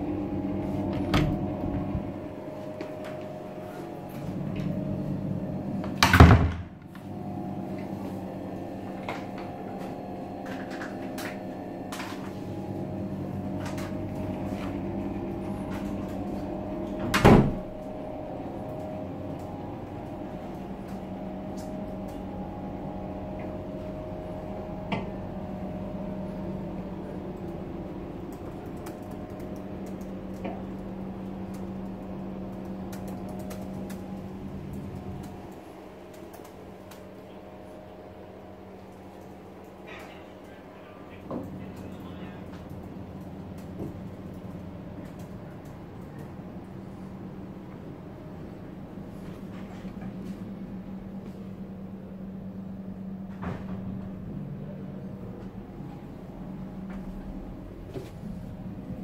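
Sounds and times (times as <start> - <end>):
steady hum: 0.0 - 59.0
wooden door thudding shut: 6.0 - 6.7, 17.1 - 17.8.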